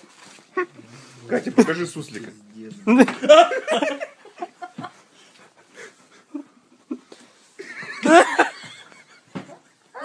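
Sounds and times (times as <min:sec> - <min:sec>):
young woman laughing: 0:06.3 - 0:09.4.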